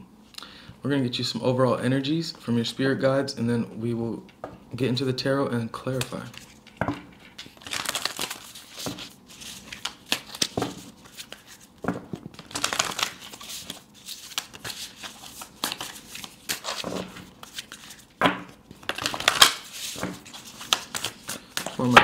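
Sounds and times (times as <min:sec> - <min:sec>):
cards being shuffled: 0:05.9 - 0:22.0.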